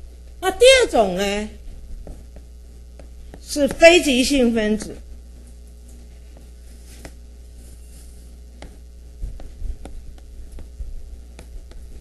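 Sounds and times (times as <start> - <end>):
low electrical hum: 0.0 - 12.0
soft low thumps: 1.6 - 4.0, 8.3 - 12.0.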